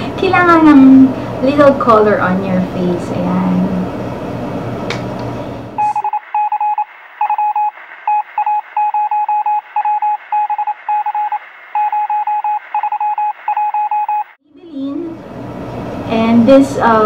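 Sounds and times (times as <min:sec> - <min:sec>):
morse code beeping: 0:05.8 - 0:14.4.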